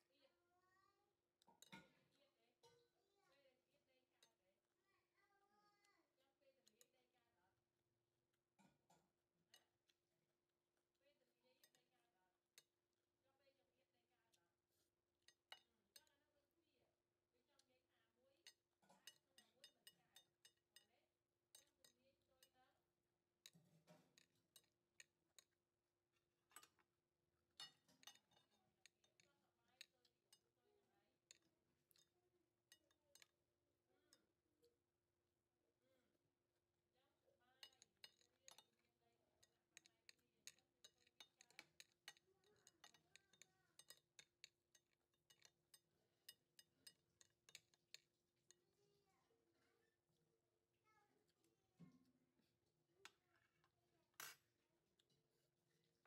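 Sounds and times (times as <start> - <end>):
chopsticks clicking on porcelain plate: 27.6 - 29.9, 37.6 - 38.8, 39.4 - 48.6.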